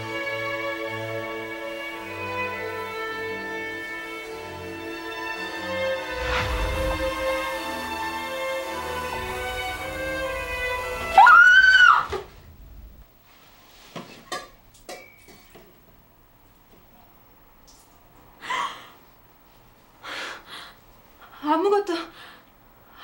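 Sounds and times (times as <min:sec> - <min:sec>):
high-pitched wail: 0:06.0 - 0:12.8.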